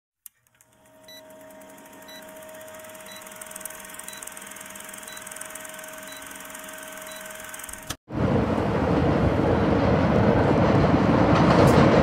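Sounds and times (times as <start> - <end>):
film projector rattling: 0.3 - 8.0
short beeps: 2.0 - 2.4, 3.0 - 7.6.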